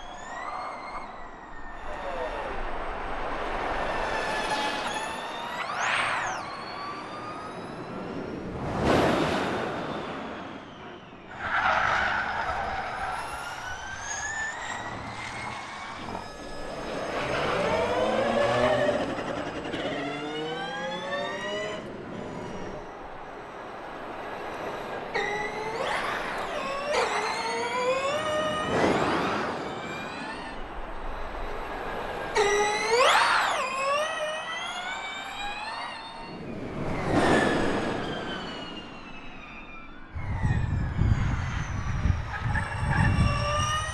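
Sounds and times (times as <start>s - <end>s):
electric race car whining: 0.0s - 43.9s
tyre and wind noise: 40.1s - 43.9s.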